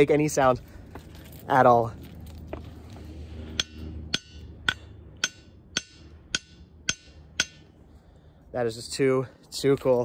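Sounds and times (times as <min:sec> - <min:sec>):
hammer striking ringing rock: 0:03.5 - 0:07.7.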